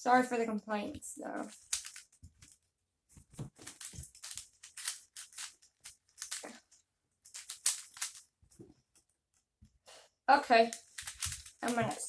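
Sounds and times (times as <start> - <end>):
puzzle cube plastic clicks: 1.5 - 2.6, 3.6 - 8.3, 10.6 - 12.0.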